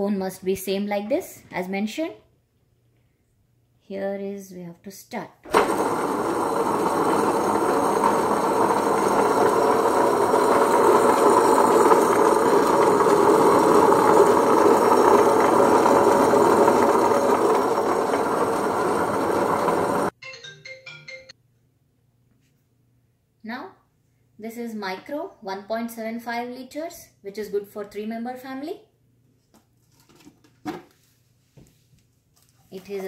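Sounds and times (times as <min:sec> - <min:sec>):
wet grinder motor running: 0:05.5 - 0:20.1.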